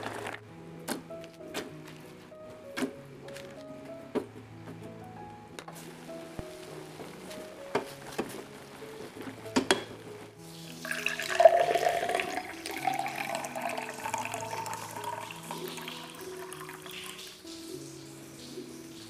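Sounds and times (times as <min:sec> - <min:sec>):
soft background music: 0:00.0 - 0:19.0
liquid pouring into a glass: 0:10.8 - 0:17.4.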